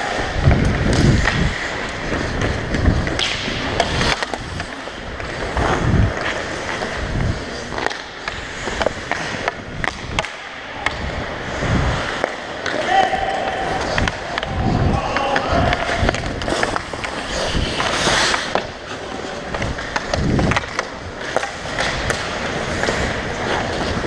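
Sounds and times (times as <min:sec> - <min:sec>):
skates scraping on ice: 0:00.0 - 0:24.0
sticks and puck clicking on ice: 0:00.0 - 0:24.0.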